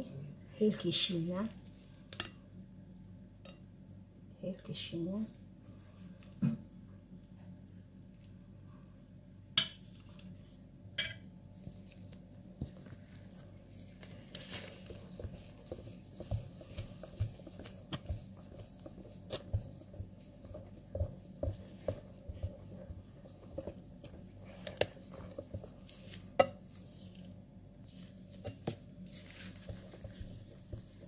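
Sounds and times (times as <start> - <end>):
utensil stirring batter: 11.7 - 31.0.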